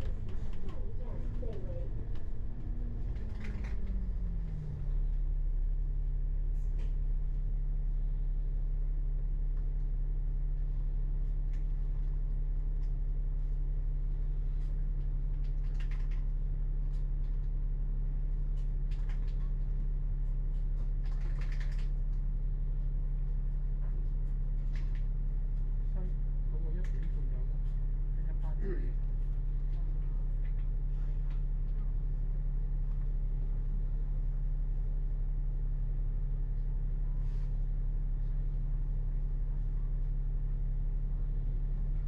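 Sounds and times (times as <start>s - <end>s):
faint clicks and rattles: 0.0s - 4.9s, 14.7s - 17.6s, 20.5s - 22.3s
vehicle engine idling: 0.0s - 15.6s.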